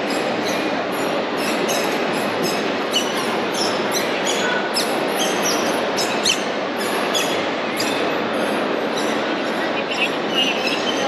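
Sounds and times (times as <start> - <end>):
high squeaks and clicks: 0.0 - 8.0.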